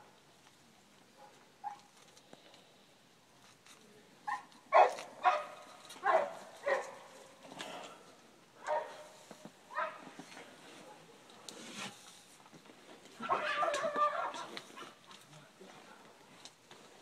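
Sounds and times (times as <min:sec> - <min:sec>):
dog barking: 0:01.2 - 0:01.9, 0:04.3 - 0:07.2, 0:08.6 - 0:09.1, 0:09.7 - 0:10.1, 0:13.2 - 0:15.0.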